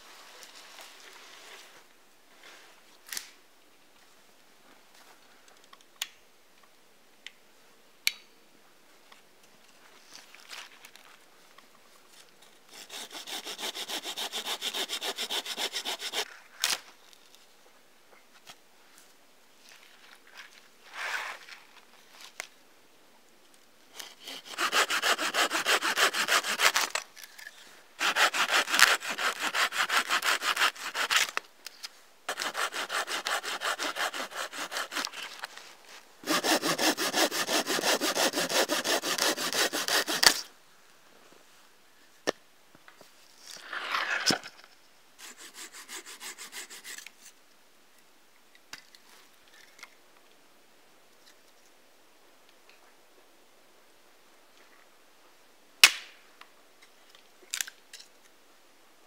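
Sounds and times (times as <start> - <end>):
hand saw cutting log: 12.7 - 16.3, 24.0 - 27.0, 28.0 - 31.4, 32.3 - 35.3, 36.2 - 40.5, 45.2 - 47.0.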